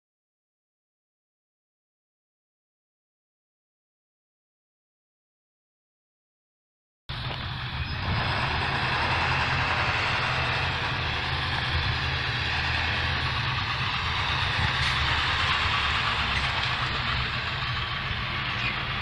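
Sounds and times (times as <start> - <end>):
bus diesel engine driving past: 7.1 - 19.0.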